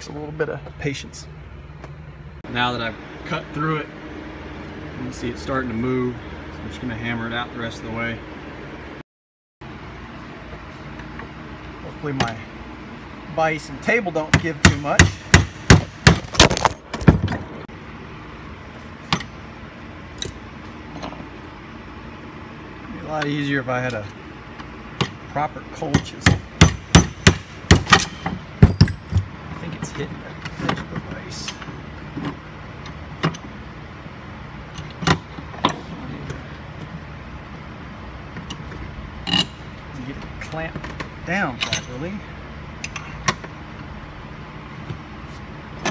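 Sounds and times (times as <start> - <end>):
hammer striking metal tool: 25.9 - 29.2.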